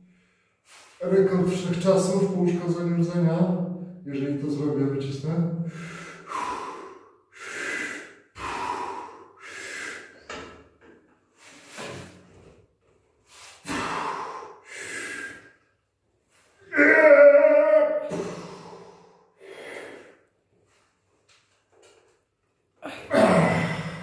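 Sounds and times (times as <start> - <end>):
man breathing hard: 5.6 - 10.6, 13.2 - 15.7, 18.1 - 20.4
man grunting: 16.6 - 18.8, 22.8 - 24.0.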